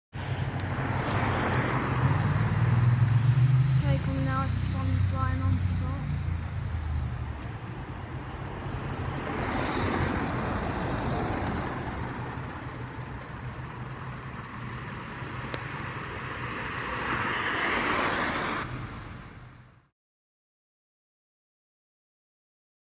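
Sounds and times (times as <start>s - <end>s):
road noise from vehicle: 0.1s - 19.9s
diesel bus passing: 0.2s - 19.9s.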